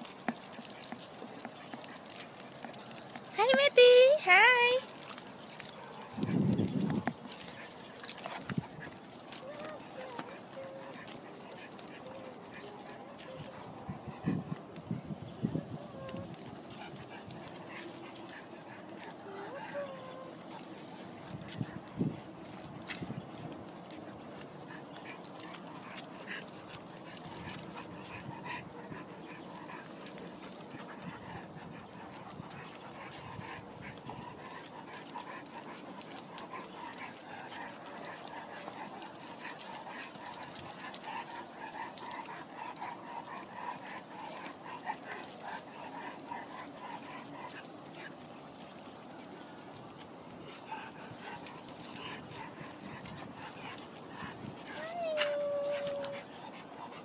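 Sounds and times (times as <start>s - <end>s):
footsteps on brick paving: 0.0s - 15.0s
dog whining: 19.2s - 20.5s, 54.7s - 56.4s.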